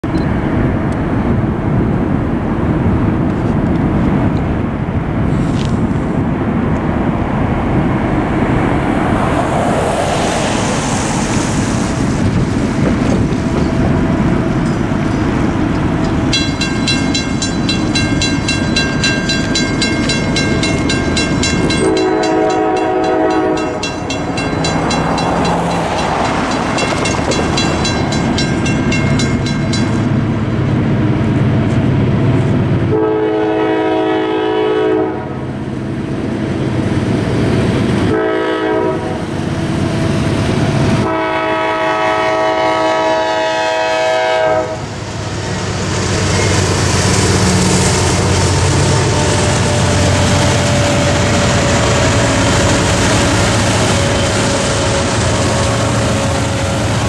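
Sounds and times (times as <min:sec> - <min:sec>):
broad rushing noise: 0:00.4 - 0:33.0, 0:44.5 - 0:57.0
railroad crossing bell ringing: 0:14.6 - 0:30.5
locomotive horn blast: 0:21.6 - 0:24.1, 0:32.8 - 0:35.4, 0:38.1 - 0:39.3, 0:41.0 - 0:45.0, 0:47.8 - 0:57.0.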